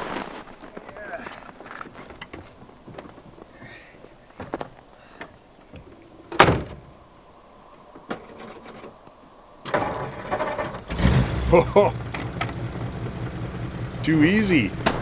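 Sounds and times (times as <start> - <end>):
car door slam: 6.4 - 6.9, 14.8 - 15.0.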